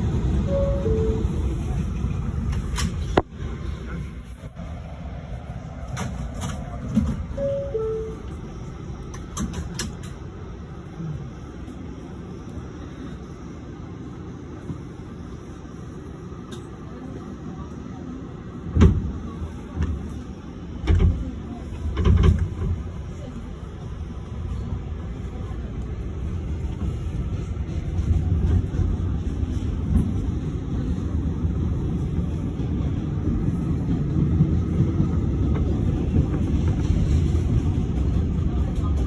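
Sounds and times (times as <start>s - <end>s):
heavy train clunks: 0.0s - 4.7s, 5.6s - 10.8s, 18.4s - 39.0s
train wheels rumbling on rails: 0.0s - 39.0s.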